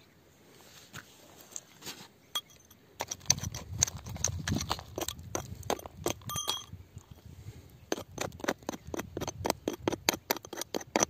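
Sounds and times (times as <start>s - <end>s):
metal pick scraping gravel and rock: 2.4s - 11.0s.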